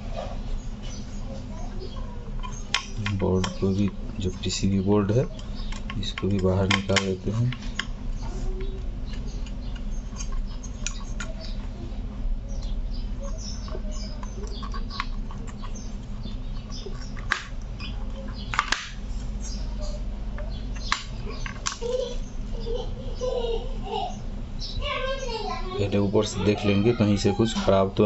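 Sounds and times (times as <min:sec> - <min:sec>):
screwdriver clicks and taps: 0:05.4 - 0:07.9.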